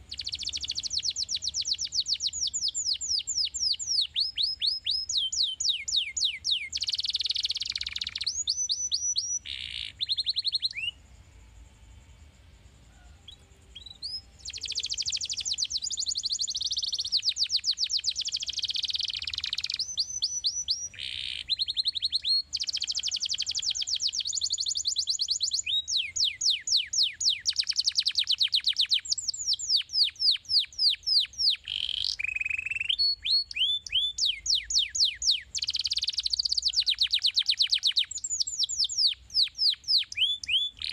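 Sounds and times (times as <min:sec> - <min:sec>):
canary singing trills: 0:00.0 - 0:11.4, 0:12.7 - 0:40.9.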